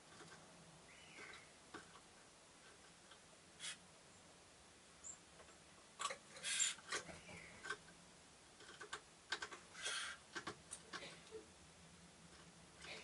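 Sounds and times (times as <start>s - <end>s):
beaks tapping on perch: 8.6s - 11.3s.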